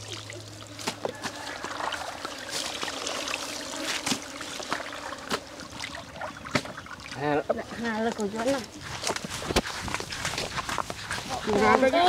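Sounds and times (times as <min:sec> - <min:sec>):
water trickling and dripping: 0:00.0 - 0:09.2
small water splashes: 0:00.0 - 0:11.5.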